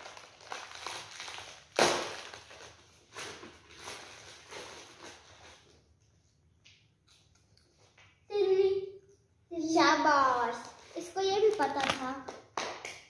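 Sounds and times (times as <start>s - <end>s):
plastic packet crackle: 0.0s - 5.6s
plastic packet rustling: 0.0s - 5.8s.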